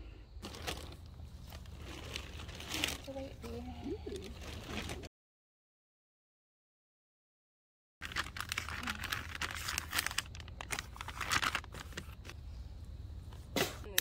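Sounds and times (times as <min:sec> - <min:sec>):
paper wrapper crinkling: 0:00.4 - 0:05.1, 0:08.0 - 0:12.4.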